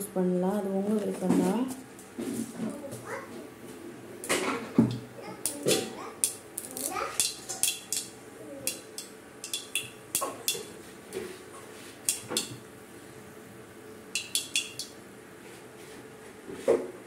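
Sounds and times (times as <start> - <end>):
seeds popping in hot oil: 6.2 - 10.7.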